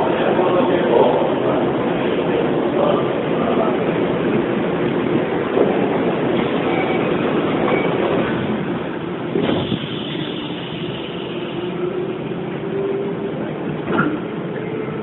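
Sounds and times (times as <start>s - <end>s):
train rumble inside car: 0.0s - 15.0s.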